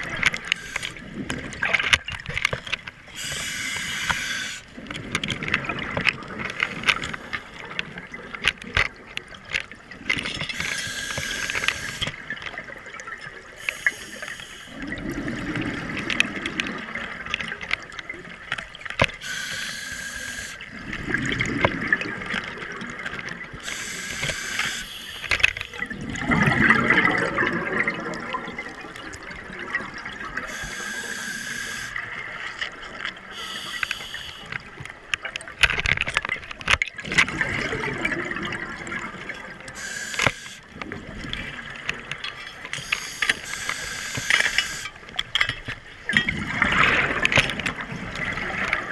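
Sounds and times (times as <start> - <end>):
exhaled air bubbling: 0.0 - 35.6, 36.9 - 48.9
small sharp clicks: 0.1 - 12.6, 21.5 - 25.8, 39.7 - 40.9, 41.9 - 46.4
regulator hissing inhales: 19.2 - 20.6, 30.5 - 32.0, 33.3 - 34.5, 42.9 - 44.9.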